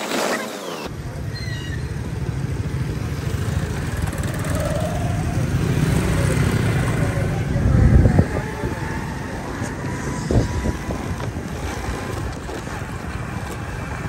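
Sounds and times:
vehicle low rumble: 0:00.9 - 0:14.0.

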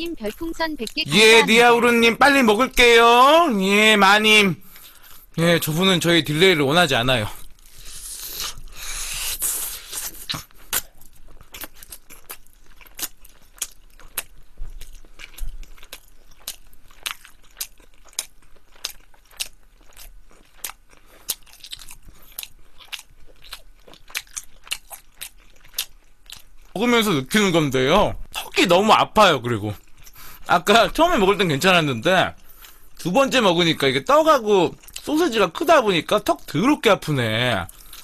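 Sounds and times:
chewing and biting: 0:00.0 - 0:01.5, 0:07.3 - 0:26.8, 0:34.7 - 0:35.3, 0:37.7 - 0:38.0.

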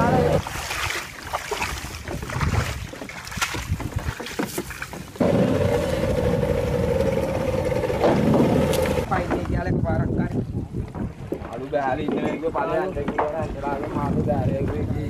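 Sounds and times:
small boat motor humming: 0:00.0 - 0:00.6, 0:04.9 - 0:09.1
water noise: 0:00.0 - 0:15.0
wind: 0:00.0 - 0:15.0.

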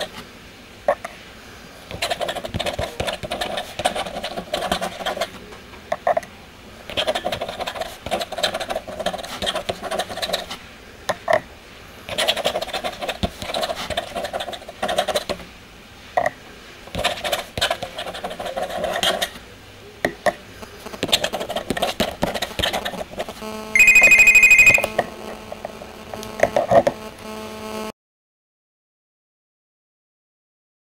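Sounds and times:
pen scratching across paper: 0:01.9 - 0:05.4, 0:06.9 - 0:10.6, 0:12.1 - 0:15.4, 0:16.9 - 0:19.4, 0:20.9 - 0:23.4
steady low hum: 0:16.6 - 0:27.9
trilling electronic ring: 0:23.8 - 0:25.0.

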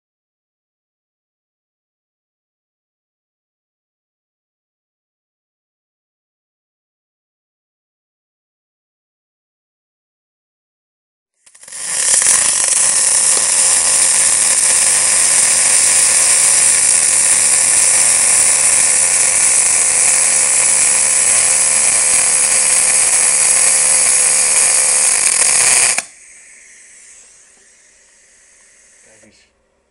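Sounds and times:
welding arc hissing: 0:11.4 - 0:29.5.

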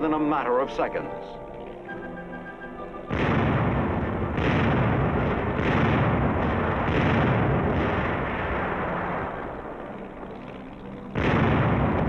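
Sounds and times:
anti-aircraft gun firing: 0:03.1 - 0:10.0, 0:11.1 - 0:12.0
continuous rumble: 0:03.1 - 0:12.0.

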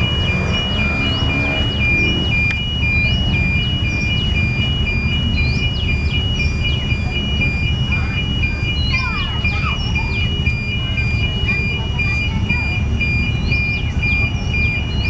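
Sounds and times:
diesel locomotive rumble: 0:00.0 - 0:15.0
level crossing two-tone alarm: 0:00.0 - 0:15.0
bird chirps: 0:00.3 - 0:07.6, 0:13.2 - 0:15.0.

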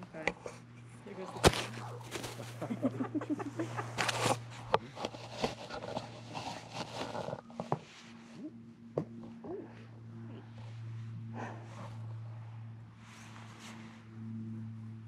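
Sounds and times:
straw rustling and crackling: 0:01.1 - 0:02.9, 0:03.8 - 0:07.7.

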